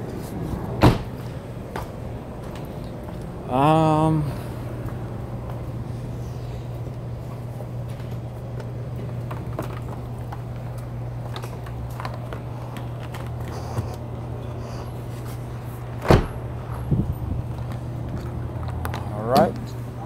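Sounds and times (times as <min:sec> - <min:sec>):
steady low hum: 0:00.0 - 0:20.0
car door shutting: 0:00.8 - 0:01.2, 0:16.0 - 0:16.5
handling clicks and rustles: 0:06.8 - 0:14.1.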